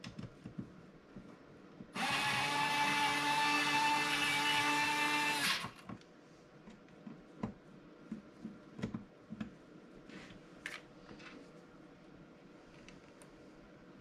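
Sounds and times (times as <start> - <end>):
electric screwdriver motor whine: 2.0 - 5.8.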